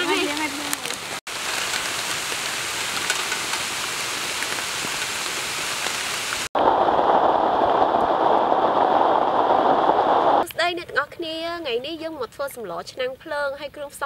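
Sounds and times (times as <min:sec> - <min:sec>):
rain falling: 0:00.0 - 0:10.5.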